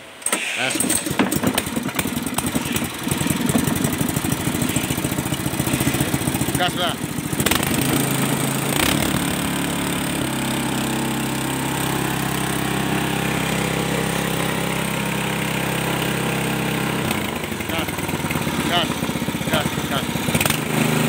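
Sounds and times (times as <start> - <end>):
small gasoline engine running: 0.6 - 21.0
engine knock: 0.9 - 9.2, 17.1 - 20.8.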